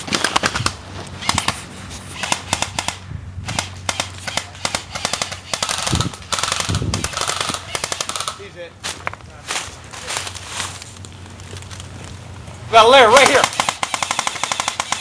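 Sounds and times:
airsoft guns firing: 0.0s - 1.6s, 2.2s - 8.4s, 13.1s - 15.0s.

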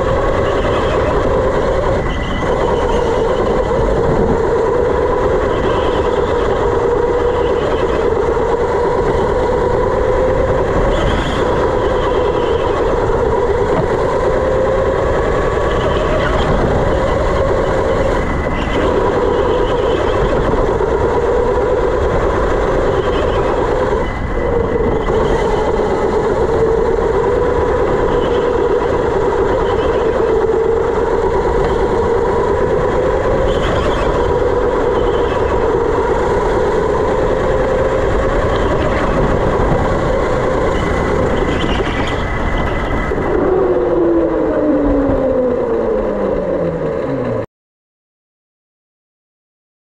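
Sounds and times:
electric motor whine: 0.0s - 47.4s
tyre and chassis rumble: 0.0s - 47.5s.

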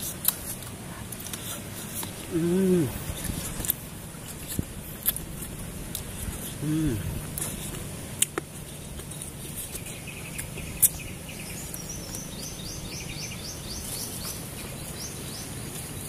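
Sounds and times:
low background hum: 0.0s - 16.0s
bird singing high chirps: 9.7s - 16.0s.

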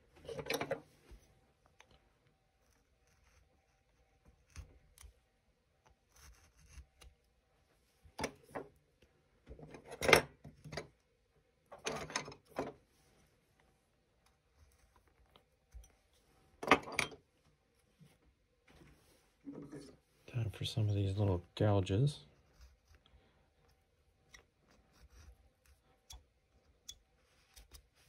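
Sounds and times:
knife carving wood: 1.7s - 7.4s, 14.2s - 16.2s, 22.2s - 28.0s.

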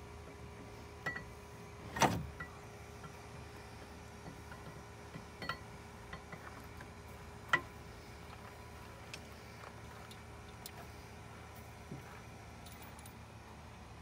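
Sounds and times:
faint steady hum: 0.0s - 14.0s.

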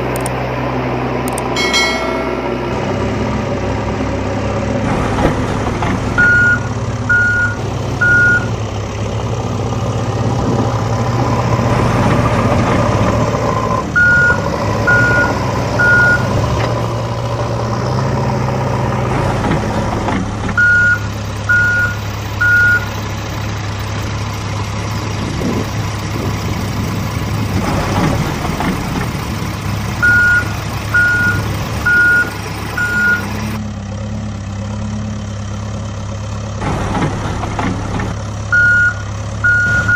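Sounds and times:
heavy vehicle engine running: 0.0s - 39.9s
reversing alarm beeping: 6.2s - 8.5s, 14.0s - 16.4s, 20.6s - 22.9s, 30.0s - 33.4s, 38.5s - 39.9s.

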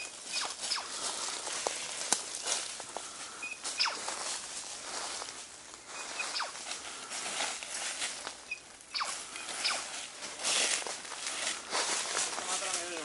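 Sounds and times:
footsteps through dry leaves: 0.0s - 13.0s
short high chirps: 6.2s - 6.6s.

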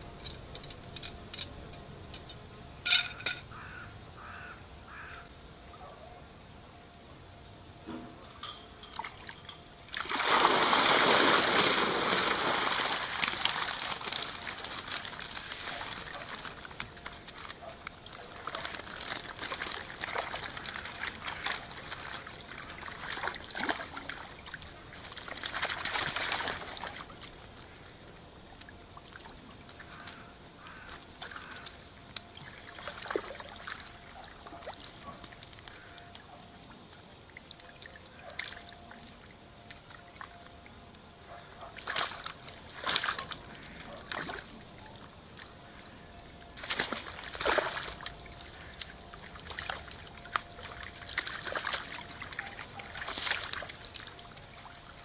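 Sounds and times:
water trickling and dripping: 8.2s - 55.0s
water gushing from net: 9.9s - 27.6s, 31.0s - 35.8s, 46.6s - 55.0s.

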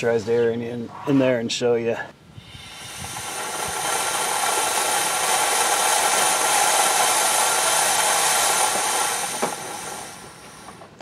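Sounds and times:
compressed air hissing: 2.3s - 11.0s.

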